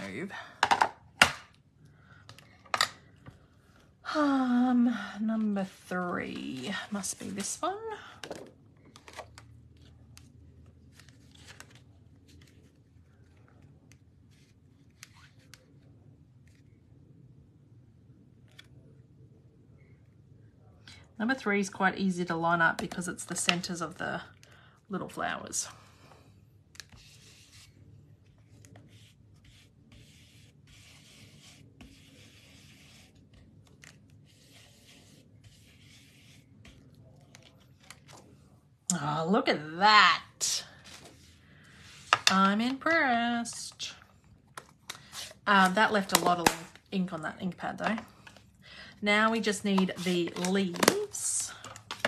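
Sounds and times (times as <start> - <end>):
brush scrubbing on cardstock: 28.7 - 33.3, 34.2 - 36.9.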